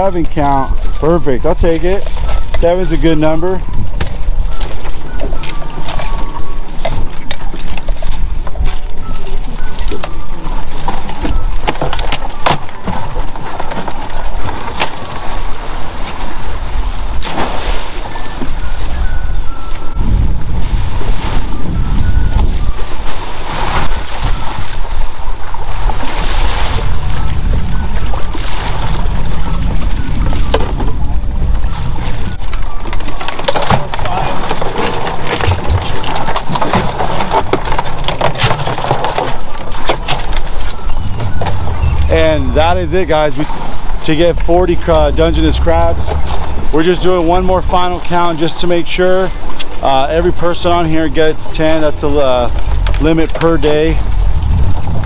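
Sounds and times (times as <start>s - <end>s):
boat low rumble: 0.0s - 55.0s
wind buffeting microphone: 0.0s - 55.0s
steady low rumble: 41.1s - 47.9s, 52.0s - 55.0s.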